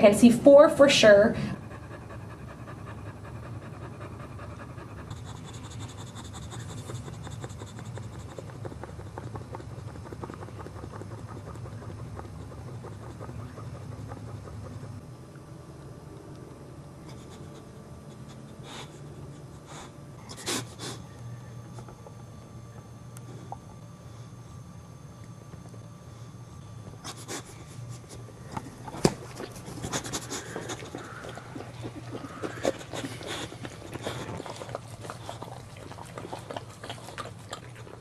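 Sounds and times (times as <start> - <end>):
dog panting rapidly: 1.4 - 15.0, 29.1 - 37.7.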